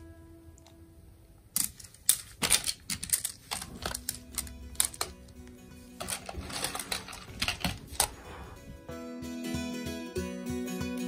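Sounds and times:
plastic tiles clicking together: 1.5 - 5.2
soft background music: 3.5 - 11.0.

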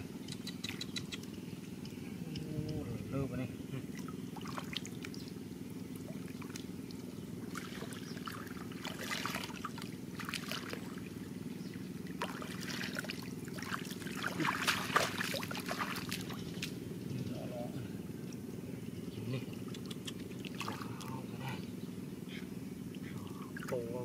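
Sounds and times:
steady low hum: 0.0 - 24.0
muddy water splashing: 3.6 - 16.9, 19.4 - 21.7, 22.8 - 24.0.

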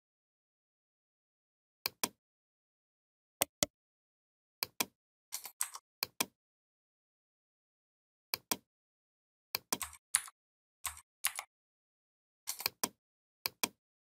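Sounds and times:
mouse and keyboard clicks: 4.6 - 6.3, 9.6 - 11.5, 12.5 - 13.8.

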